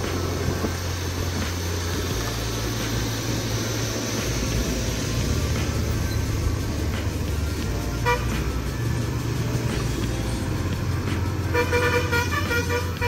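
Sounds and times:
motorcycle engine: 0.0 - 13.0
road noise: 0.0 - 13.0
vehicle horn toots: 8.0 - 8.4, 11.5 - 13.0.

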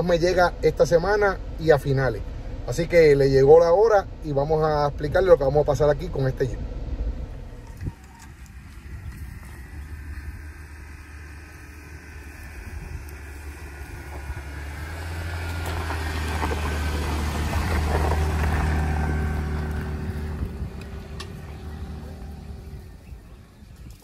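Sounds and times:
car engine driving past: 5.8 - 23.2.

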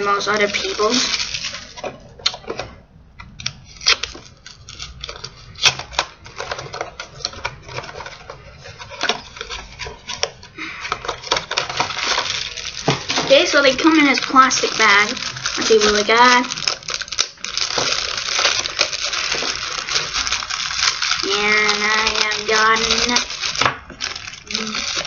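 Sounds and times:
plastic bag crinkling: 0.0 - 25.0
cardboard box tearing open: 11.2 - 25.0.

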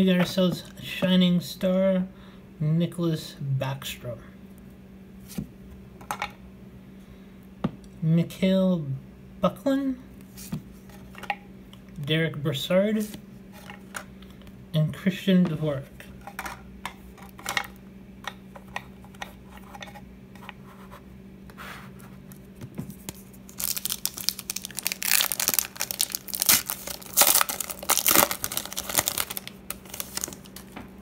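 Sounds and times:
foil wrapper crinkling and tearing: 23.1 - 30.8.

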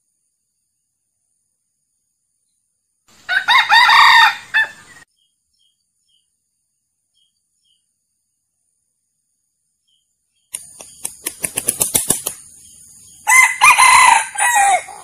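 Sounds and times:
rooster crowing: 3.2 - 5.0, 13.2 - 15.0.

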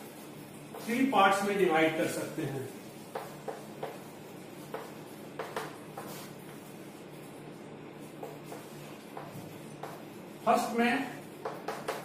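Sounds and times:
chalk tapping and scraping: 0.0 - 12.0.

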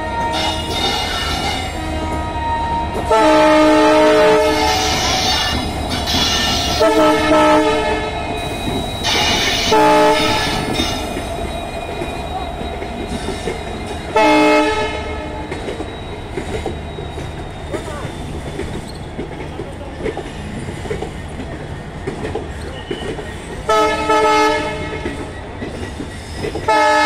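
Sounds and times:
locomotive horn blasts: 0.0 - 5.2, 6.2 - 8.2, 9.1 - 10.8, 14.2 - 15.5, 23.7 - 25.1, 26.7 - 27.0.

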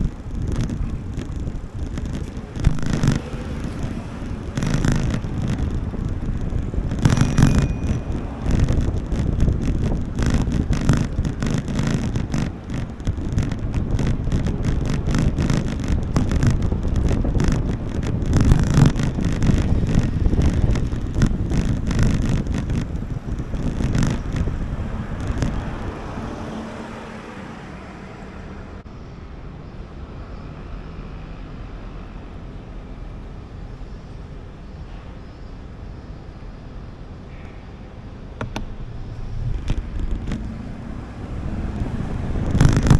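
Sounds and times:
wind buffeting microphone: 0.0 - 27.7, 37.8 - 42.9
street traffic: 0.0 - 42.9.

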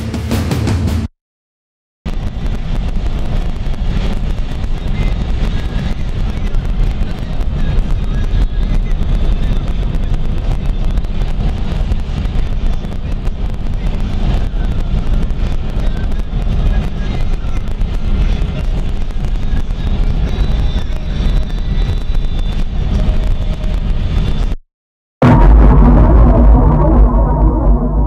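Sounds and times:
car road and engine noise: 2.1 - 24.5
wind buffeting microphone: 2.1 - 24.6.

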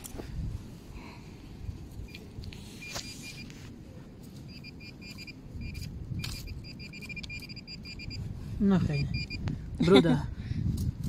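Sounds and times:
metal detector pinpointer beeping: 2.1 - 3.5, 4.4 - 8.3, 8.9 - 9.4.

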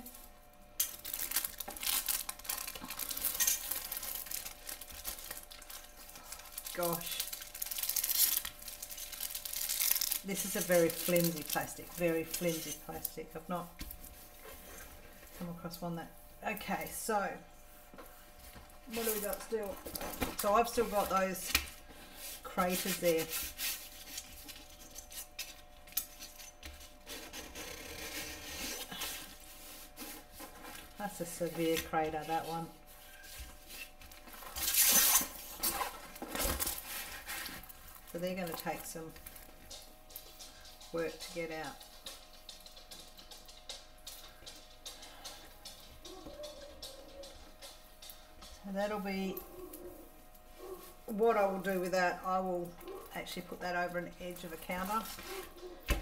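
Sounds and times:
plastic film crinkling: 0.8 - 14.7, 18.4 - 27.4, 28.2 - 43.6.

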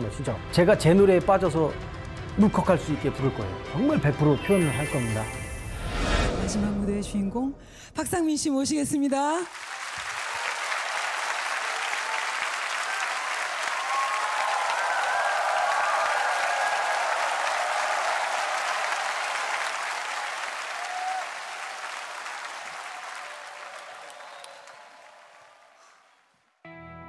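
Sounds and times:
audience applauding: 9.4 - 26.6.

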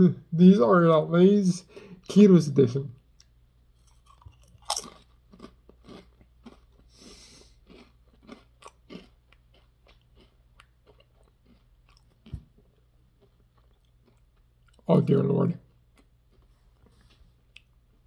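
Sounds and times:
potato chip crunching: 3.8 - 16.4.

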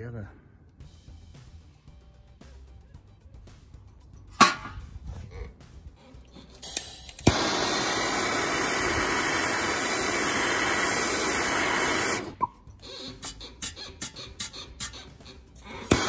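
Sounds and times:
blowtorch hissing: 6.0 - 16.0
blowtorch ignition click: 6.5 - 16.0.

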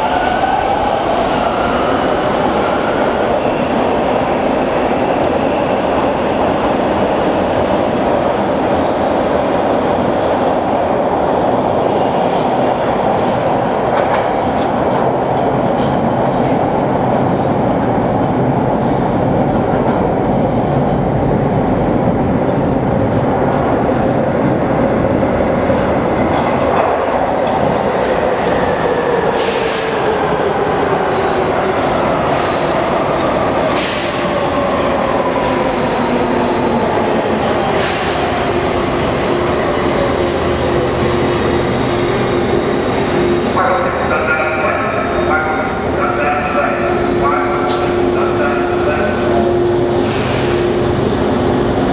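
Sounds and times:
subway train rumble: 0.0 - 51.9.

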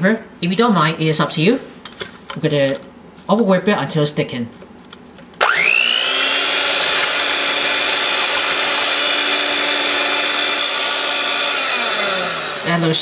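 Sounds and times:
electric mixer whining: 5.4 - 13.0.

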